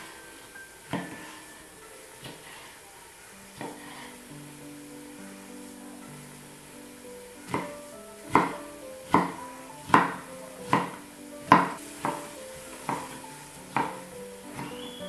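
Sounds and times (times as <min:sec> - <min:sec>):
soft background music: 0:00.0 - 0:15.0
sharp kitchen knocks: 0:07.5 - 0:12.3, 0:12.9 - 0:14.8.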